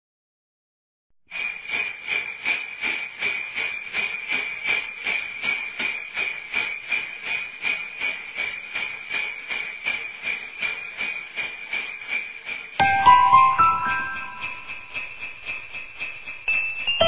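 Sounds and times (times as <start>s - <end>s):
sleigh bells jingling: 12.8s - 17.0s.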